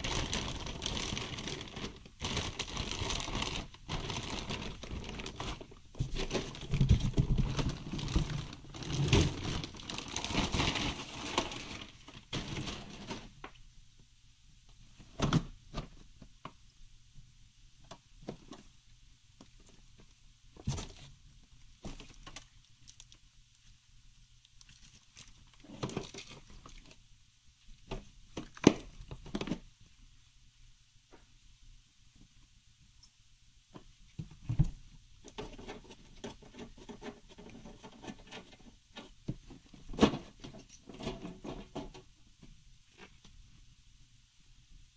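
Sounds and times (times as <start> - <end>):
plastic bag crinkling: 0.0 - 13.5.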